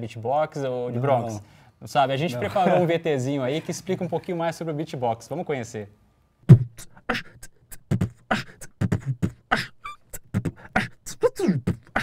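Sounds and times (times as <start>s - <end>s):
beatboxing into a microphone: 6.5s - 12.0s
pitched vocal sound: 6.5s - 12.0s.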